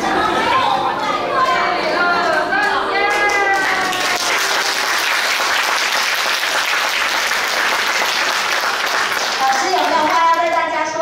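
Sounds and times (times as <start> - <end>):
audience applauding: 3.1 - 10.8.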